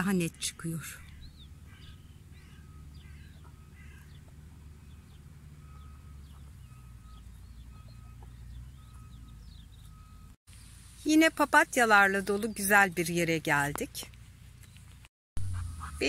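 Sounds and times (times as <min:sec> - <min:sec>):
birds chirping and singing: 0:00.1 - 0:10.2.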